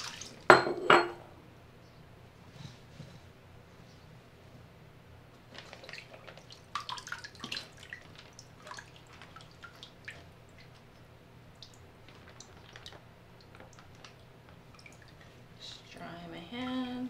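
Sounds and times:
water splashing: 0.0 - 0.5, 5.5 - 15.4
water dripping into basin: 5.7 - 15.4.

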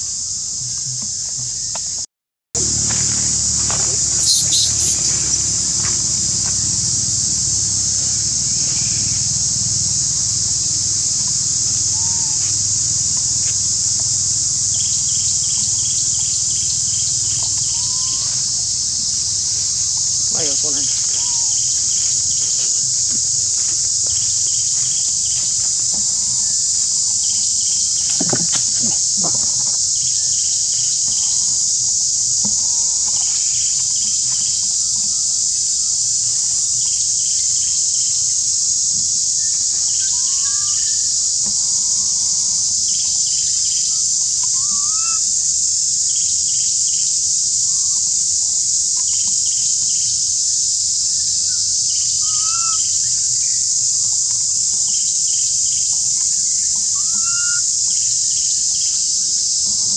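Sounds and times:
insect chorus drone: 0.0 - 59.9
short rising chirps: 3.9 - 5.6.

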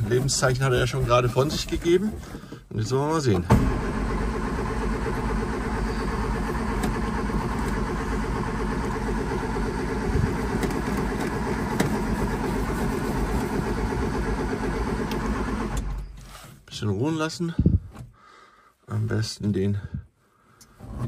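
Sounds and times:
petrol engine idling: 3.6 - 16.0.

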